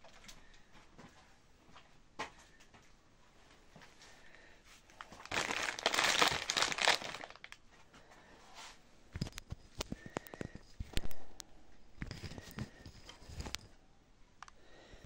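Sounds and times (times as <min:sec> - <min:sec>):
crinkling rustling: 0:04.8 - 0:07.8, 0:12.0 - 0:13.8.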